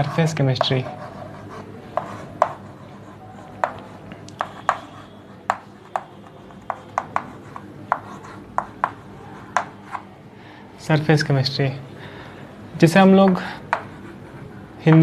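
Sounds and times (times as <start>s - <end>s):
chalk tapping on blackboard: 0.0s - 10.1s, 13.2s - 15.0s.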